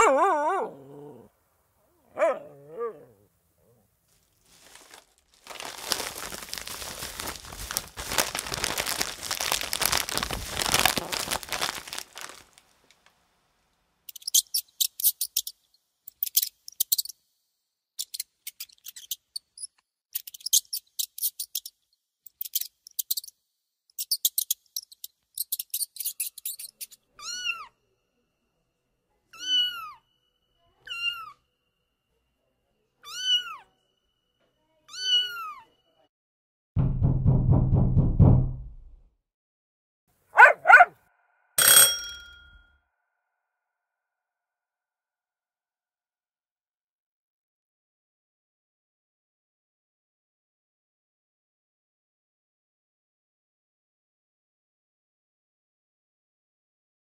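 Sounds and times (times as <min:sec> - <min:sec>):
dense rustling: 0:04.1 - 0:12.6
cat meowing: 0:27.2 - 0:27.8, 0:29.3 - 0:30.0, 0:30.8 - 0:31.4, 0:33.0 - 0:33.7, 0:34.9 - 0:35.7.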